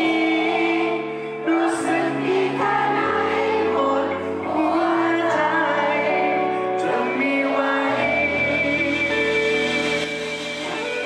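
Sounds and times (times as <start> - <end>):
man singing pop ballad: 0.0 - 8.8
audience singing along: 0.0 - 11.0.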